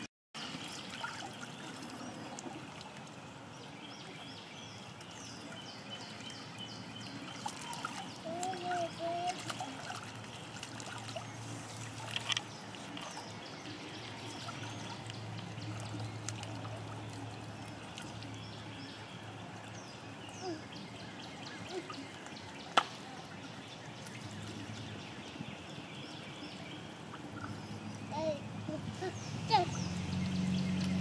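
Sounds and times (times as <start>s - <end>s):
stream trickling over rocks: 0.0s - 31.0s
ducks splashing in water: 0.4s - 4.2s, 7.0s - 19.8s.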